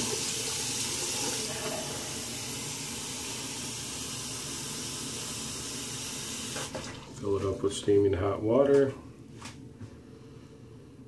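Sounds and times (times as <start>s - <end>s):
tap running into sink: 6.4s - 7.1s.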